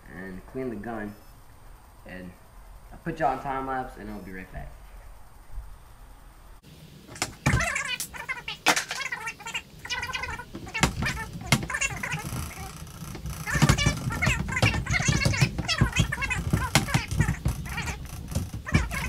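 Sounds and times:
handling clicks and knocks: 7.1s - 9.1s, 9.9s - 19.0s
sped-up voice chattering: 7.4s - 19.0s.

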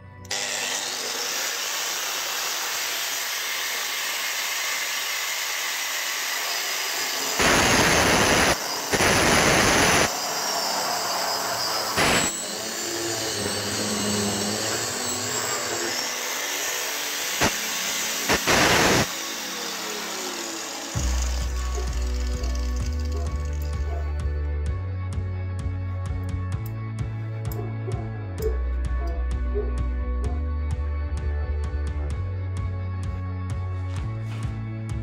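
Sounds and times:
drill bit grinding: 0.2s - 24.2s
core drill running: 0.3s - 24.2s.

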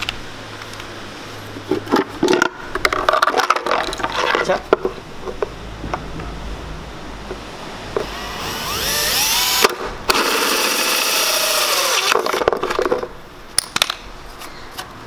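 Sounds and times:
cordless drill with hole saw: 8.0s - 12.4s
saw cutting through plastic: 8.0s - 12.4s.

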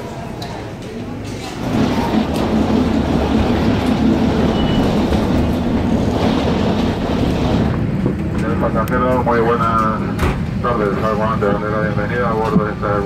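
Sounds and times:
cabin ventilation air rushing: 1.6s - 11.9s.

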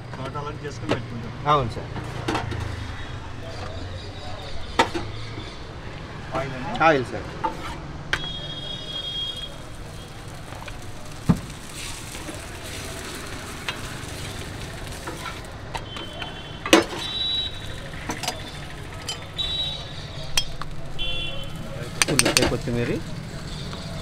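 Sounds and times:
oil sizzling: 8.3s - 24.0s.

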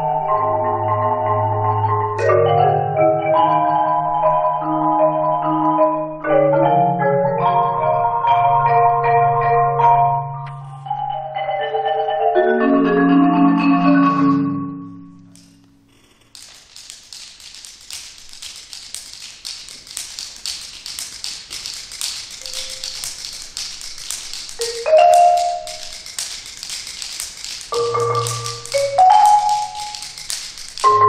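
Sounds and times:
marimba notes: 0.0s - 15.4s, 22.4s - 23.3s, 24.4s - 26.2s, 27.4s - 31.0s
light high clicking taps: 16.4s - 31.0s.

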